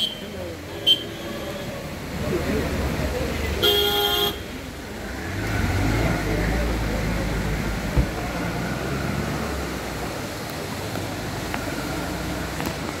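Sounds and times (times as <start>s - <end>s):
road traffic rumble: 0.0s - 13.0s
sharp thump: 7.9s - 8.2s.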